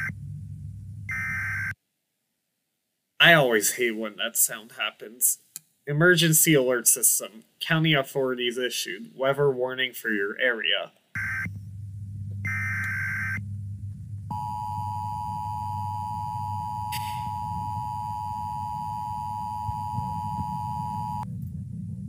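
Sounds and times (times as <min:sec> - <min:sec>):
low steady hum: 0:00.0 - 0:01.8, 0:03.2 - 0:22.0
high warbling alert bursts: 0:01.1 - 0:01.8
two-tone attention signal: 0:14.3 - 0:21.2.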